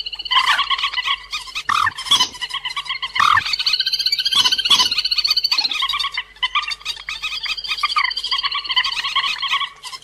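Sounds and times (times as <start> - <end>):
waterbird chattering calls: 0.3 - 7.6.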